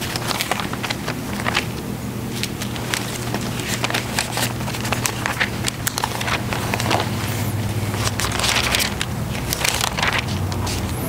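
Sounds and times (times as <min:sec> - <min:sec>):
thin pages being leafed through: 0:00.0 - 0:11.0.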